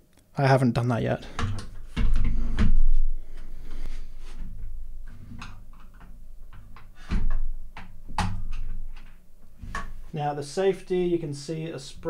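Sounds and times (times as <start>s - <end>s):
plastic parts clicking and knocking: 1.3s - 2.9s, 4.4s - 10.0s.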